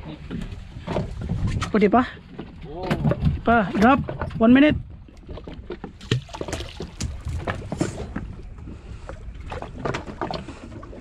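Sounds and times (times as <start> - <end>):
wind on microphone: 0.0 - 2.0.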